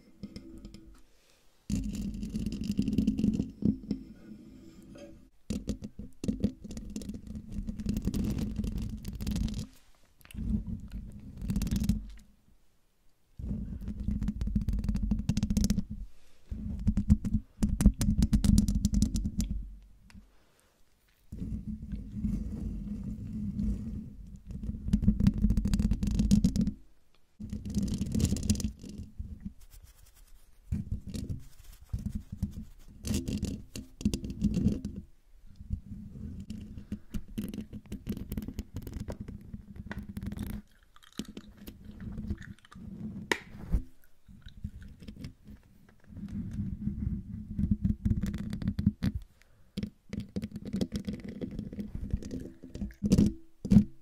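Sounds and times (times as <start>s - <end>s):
fingernails scratching microphone grille: 21.3s - 26.2s, 27.5s - 35.0s.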